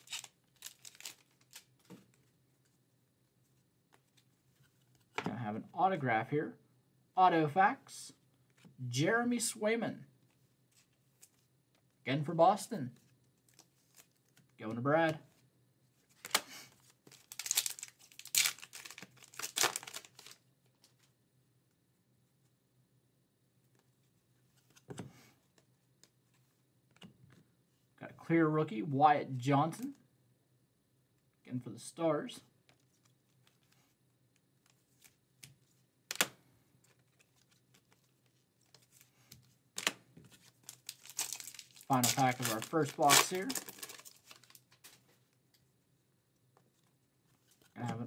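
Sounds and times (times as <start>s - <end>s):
foil wrapper crinkling: 0.0s - 1.7s, 17.1s - 20.4s, 39.8s - 45.0s
plastic rustling: 0.0s - 2.2s, 16.2s - 21.1s, 36.9s - 45.2s.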